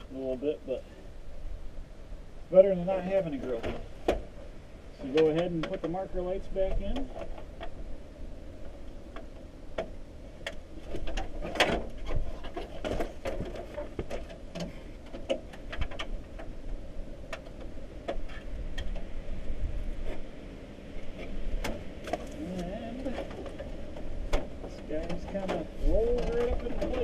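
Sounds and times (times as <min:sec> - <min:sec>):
plastic and sheet-metal clicks and rattles: 0:09.1 - 0:16.5, 0:23.0 - 0:27.0.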